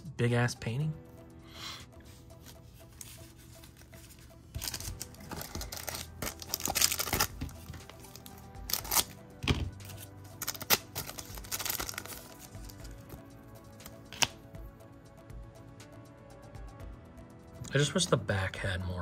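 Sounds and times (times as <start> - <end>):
quiet background music: 0.0 - 19.0
foil wrapper crinkling and tearing: 4.6 - 9.2, 9.8 - 12.6.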